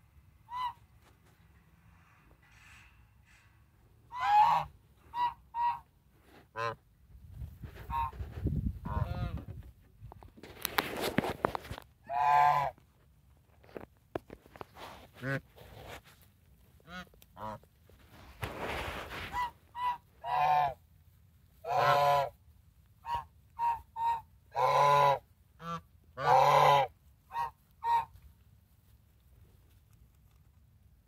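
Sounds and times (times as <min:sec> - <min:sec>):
geese honking: 0:00.5 - 0:00.9, 0:04.1 - 0:05.9, 0:06.5 - 0:06.8, 0:12.1 - 0:12.8, 0:16.8 - 0:17.7, 0:19.2 - 0:20.8, 0:21.6 - 0:22.4, 0:23.0 - 0:28.2.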